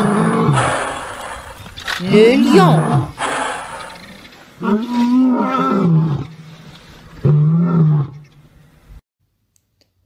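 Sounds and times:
lion roaring: 0:00.0 - 0:06.4, 0:07.2 - 0:08.2.

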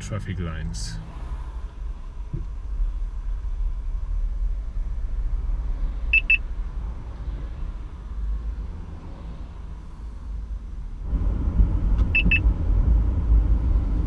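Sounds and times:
low car cabin rumble: 0:00.0 - 0:14.0
quick high warning beeps: 0:06.1 - 0:06.4, 0:12.2 - 0:12.4.

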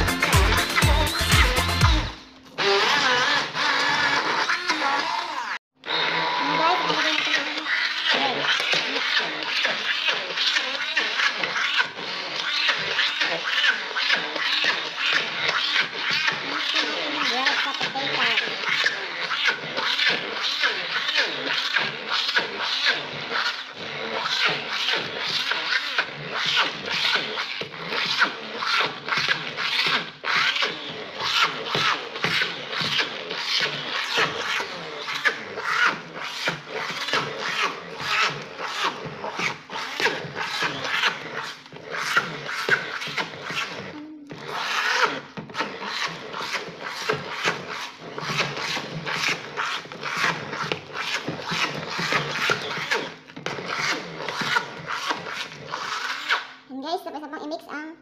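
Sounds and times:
stick blender scraping bowl: 0:00.0 - 0:57.5.

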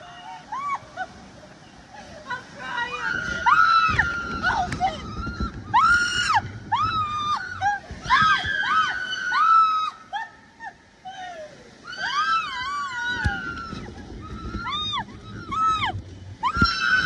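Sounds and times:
low rushing water ride: 0:00.0 - 0:17.0
riders screaming: 0:03.0 - 0:10.2, 0:11.8 - 0:17.0.

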